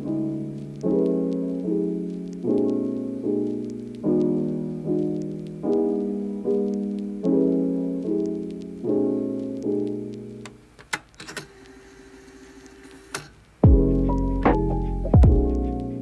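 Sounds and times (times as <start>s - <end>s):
slow piano chords: 0.0s - 10.5s, 13.6s - 16.0s.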